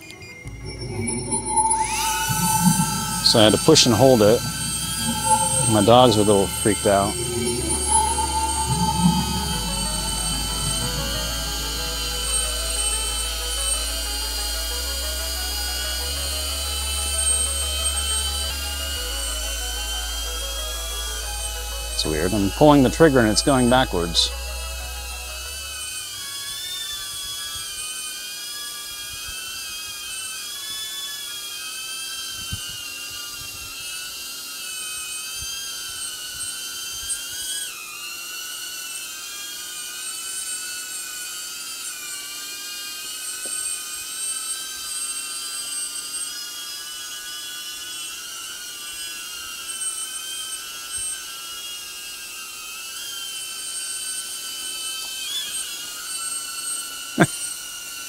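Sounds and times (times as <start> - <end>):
drone propellers whining: 0.0 - 27.4.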